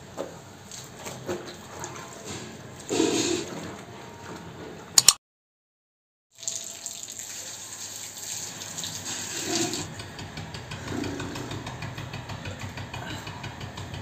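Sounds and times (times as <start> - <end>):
water running from tap: 6.3 - 10.1
water pump motor hum: 6.4 - 14.0.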